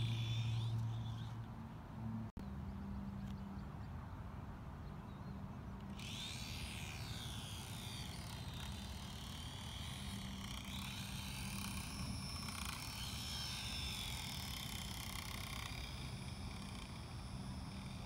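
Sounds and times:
drone propellers whining: 0.0s - 2.3s, 5.9s - 18.0s.

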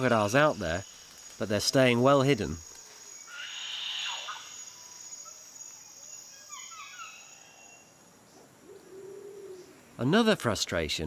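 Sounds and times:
high-pitched insect drone: 0.0s - 8.1s
bird calls: 0.0s - 10.0s
descending whistled bird notes: 3.2s - 8.0s.

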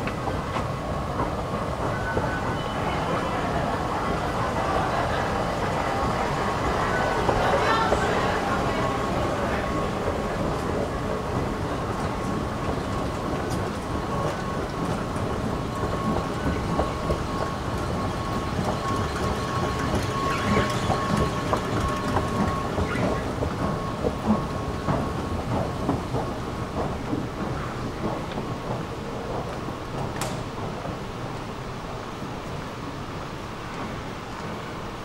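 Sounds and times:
escalator rumbling and clacking: 0.0s - 35.0s
thin steady whine: 0.0s - 35.0s.

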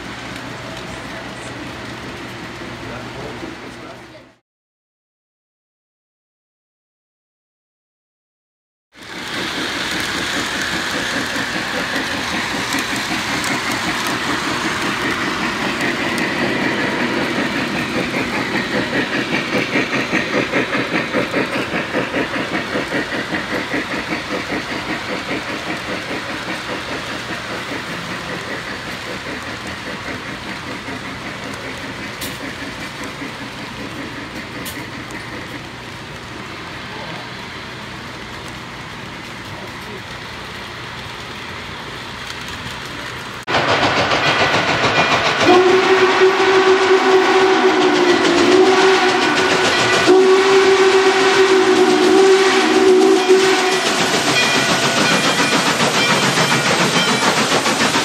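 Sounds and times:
model train clattering on track: 9.0s - 36.4s, 38.0s - 45.9s, 47.1s - 58.0s
steady steam hiss: 9.0s - 58.0s.

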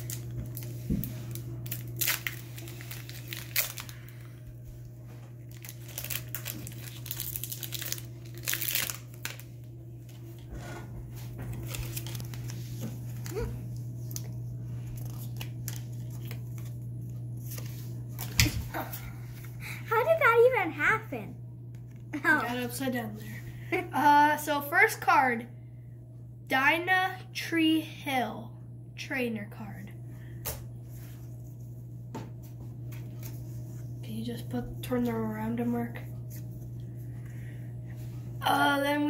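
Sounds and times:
foil wrapper crinkling and tearing: 0.0s - 4.4s, 5.4s - 10.4s, 11.5s - 16.8s.

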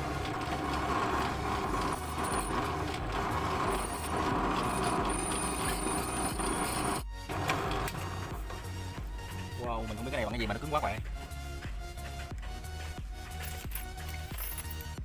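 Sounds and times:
drill press bit grinding metal: 0.0s - 10.8s.

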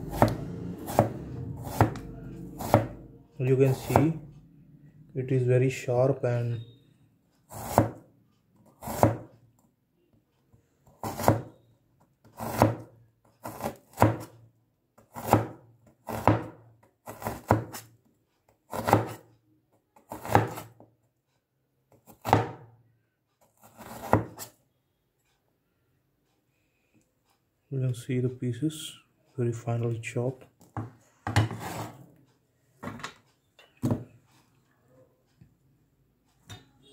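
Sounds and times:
cleaver slicing onion: 0.0s - 4.2s, 7.5s - 8.0s, 8.6s - 9.4s, 10.9s - 11.5s, 12.3s - 14.3s, 15.0s - 17.9s, 18.7s - 19.3s, 20.0s - 20.8s, 21.9s - 22.6s, 23.5s - 24.5s
blade knocking on cutting board: 1.7s - 2.9s.

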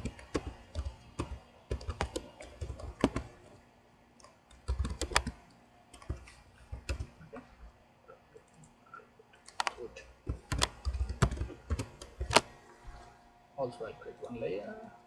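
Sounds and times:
keyboard typing: 0.0s - 3.6s, 4.2s - 7.5s, 8.1s - 12.6s.

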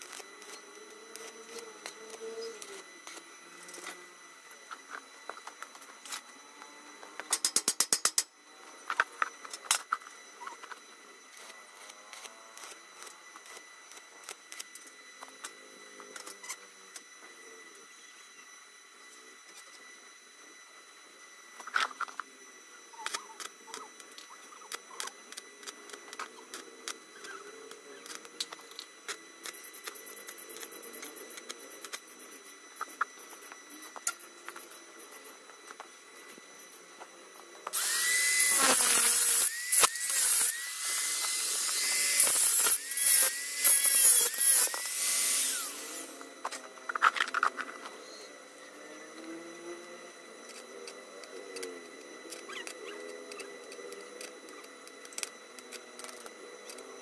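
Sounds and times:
angle grinder on steel: 37.6s - 57.0s.

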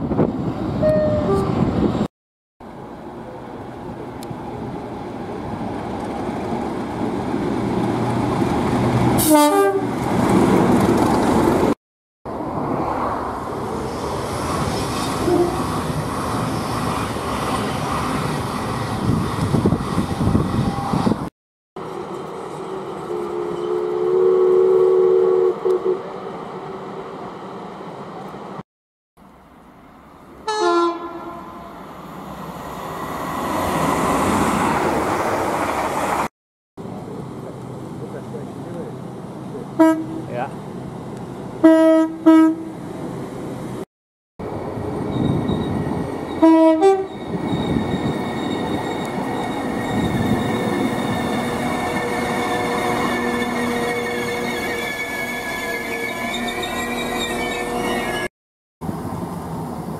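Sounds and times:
two-tone train horn: 0.8s - 1.6s, 9.2s - 9.9s, 15.2s - 15.6s, 23.1s - 26.0s, 30.5s - 31.7s, 39.8s - 40.2s, 41.6s - 42.8s, 46.4s - 47.1s
train rumbling past: 2.7s - 28.6s, 29.4s - 43.8s, 44.4s - 59.9s
steam whistle blast: 23.2s - 26.0s
train running past: 44.4s - 58.3s.

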